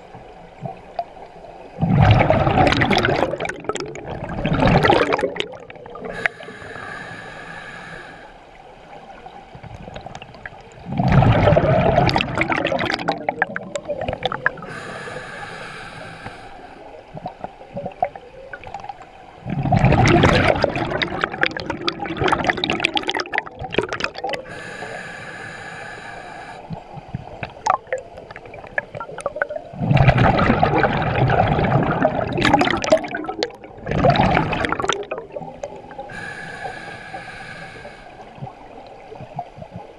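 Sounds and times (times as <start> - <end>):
exhaled bubbles rushing: 1.8 - 6.2, 9.6 - 14.7, 17.1 - 24.5, 27.0 - 36.3
hissing regulator inhale: 6.0 - 8.5, 14.6 - 17.0, 24.4 - 26.8, 35.9 - 38.4.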